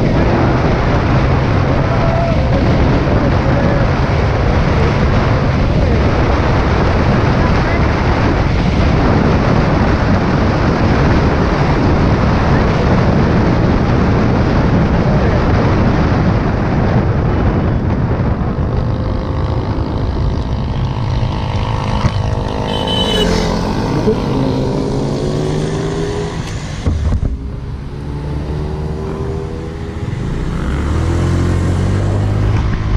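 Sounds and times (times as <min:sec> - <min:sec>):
wind rush over microphone: 0:00.0 - 0:32.9
scooter engine: 0:18.9 - 0:25.1.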